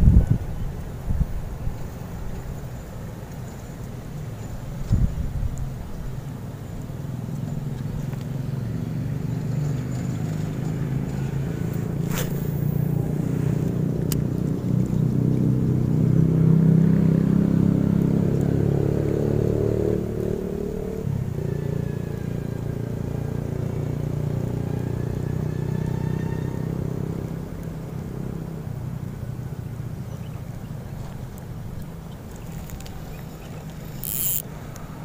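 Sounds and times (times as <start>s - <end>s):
passing vehicle engine: 8.0s - 28.7s
sharp clicks: 33.6s - 34.5s.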